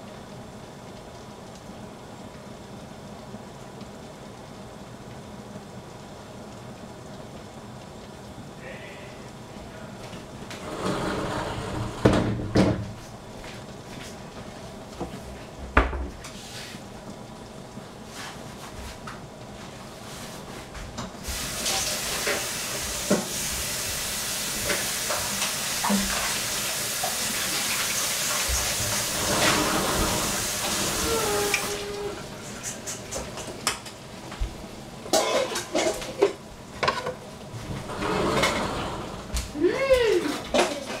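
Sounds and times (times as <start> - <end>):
steady hiss: 0.0 - 41.0
pots and utensils clinking: 21.6 - 23.4, 31.0 - 33.9, 35.1 - 37.2.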